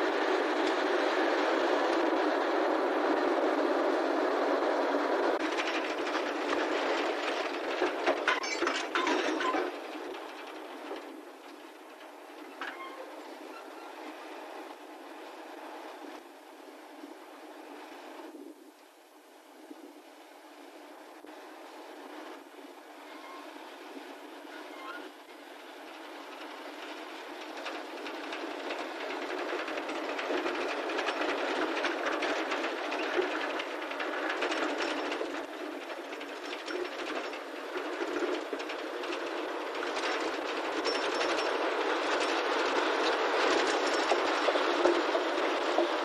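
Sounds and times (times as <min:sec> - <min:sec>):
diesel locomotive: 0:00.0 - 0:46.0
wagons rattling and clanking: 0:05.4 - 0:14.1, 0:25.8 - 0:46.0.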